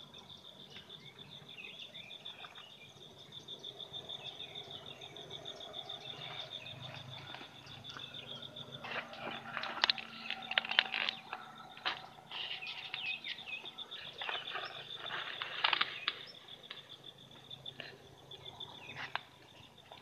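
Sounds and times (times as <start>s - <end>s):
high-pitched insect trill: 0.0s - 20.0s
leaves and stems crackling: 8.8s - 16.9s
grass rustling: 14.0s - 16.9s.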